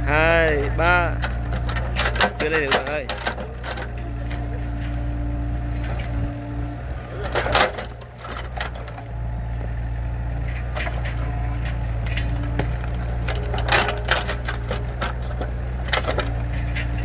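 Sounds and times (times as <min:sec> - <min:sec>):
excavator diesel engine running: 0:00.0 - 0:17.0
roots cracking and knocking: 0:07.2 - 0:17.0.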